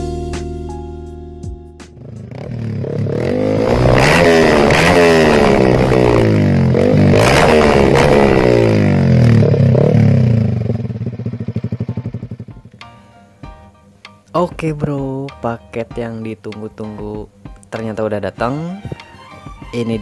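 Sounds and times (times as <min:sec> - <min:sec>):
motorcycle engine revving: 0:01.8 - 0:12.8.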